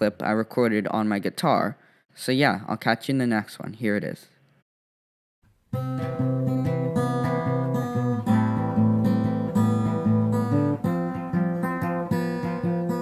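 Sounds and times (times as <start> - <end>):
acoustic guitar chords: 5.7 - 13.0.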